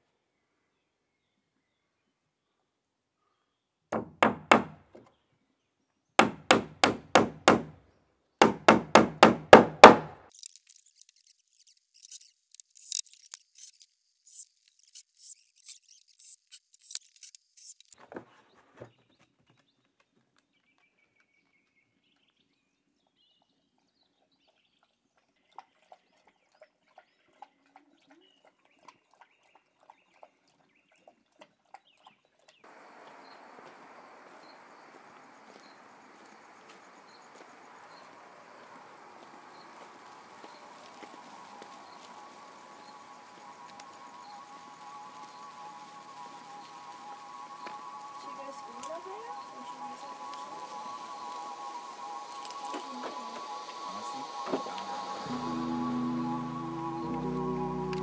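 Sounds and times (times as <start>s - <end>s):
hammer driving nails into wood: 4.0s - 5.0s, 6.2s - 7.8s, 8.4s - 10.3s.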